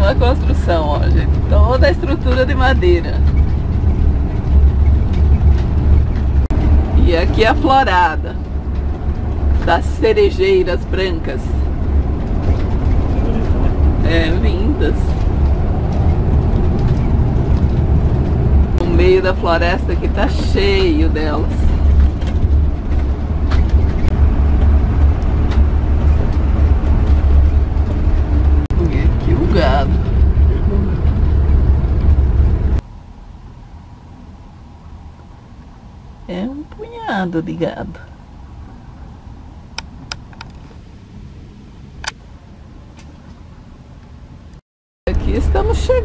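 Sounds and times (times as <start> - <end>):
engine and road rumble: 0.0 - 46.0.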